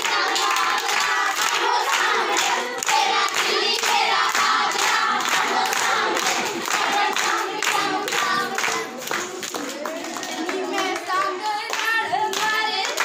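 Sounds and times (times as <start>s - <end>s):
girls singing together: 0.0s - 13.0s
hands clapping steady beat: 0.0s - 13.0s.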